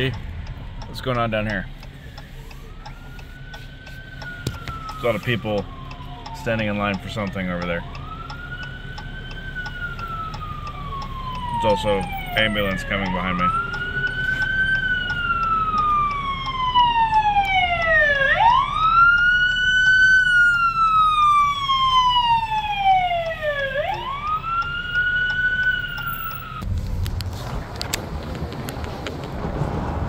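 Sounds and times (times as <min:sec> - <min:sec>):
ambulance siren wailing: 0:00.0 - 0:26.7
rushing noise: 0:26.6 - 0:30.0.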